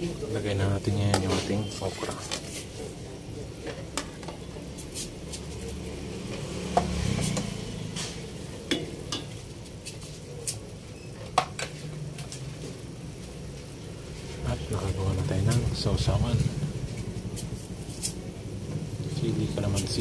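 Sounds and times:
ladle clinking against pot: 0:08.6 - 0:09.4.

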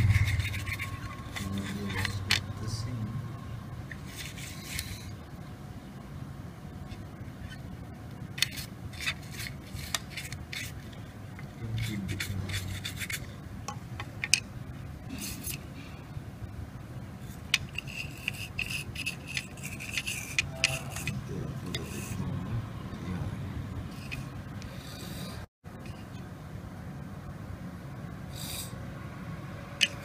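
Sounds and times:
brush scrubbing wet circuit board: 0:00.0 - 0:02.4, 0:08.4 - 0:10.8, 0:11.7 - 0:13.3, 0:17.3 - 0:22.3.

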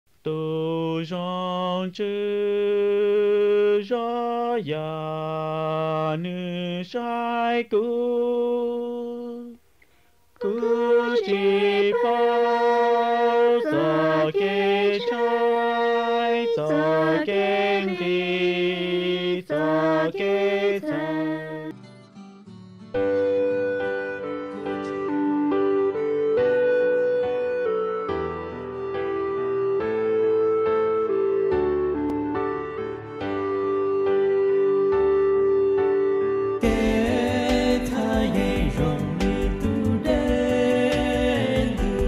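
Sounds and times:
person singing chant-like melody: 0:10.4 - 0:21.7.

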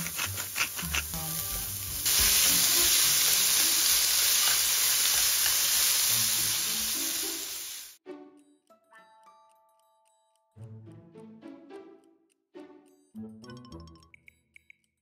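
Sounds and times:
vegetables sizzling in frying pan: 0:00.5 - 0:08.0.

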